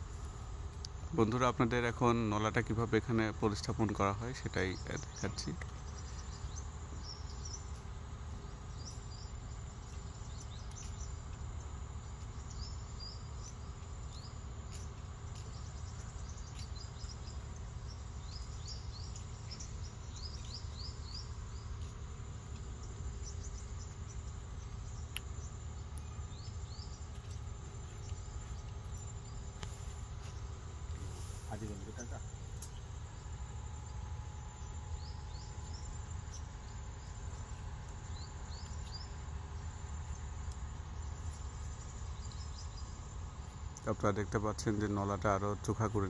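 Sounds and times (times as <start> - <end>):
small birds chirping: 0.0 - 46.0
steady low rumble: 0.0 - 46.0
faint clicks: 18.2 - 31.0, 40.0 - 42.6.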